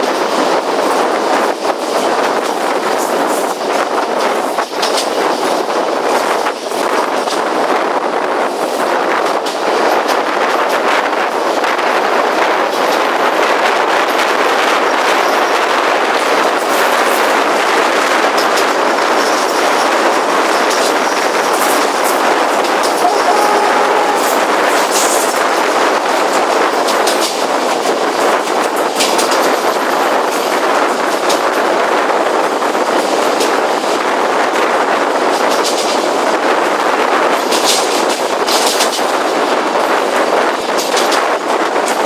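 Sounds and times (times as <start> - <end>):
train rolling at speed: 0.0 - 25.4.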